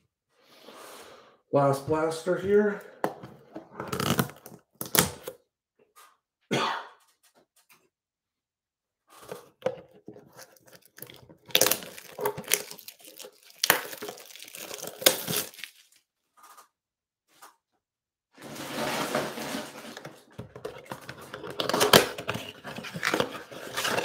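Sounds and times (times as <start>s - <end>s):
plastic wrap crinkling and tearing: 3.8s - 5.3s, 10.2s - 16.0s, 18.4s - 24.0s.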